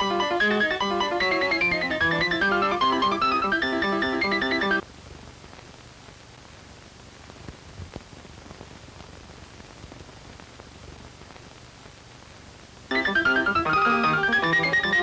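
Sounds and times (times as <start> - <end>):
piano music: 0.0 - 4.8, 12.9 - 15.0
steady hiss: 0.0 - 15.0
faint crackles and ticks: 0.1 - 15.0.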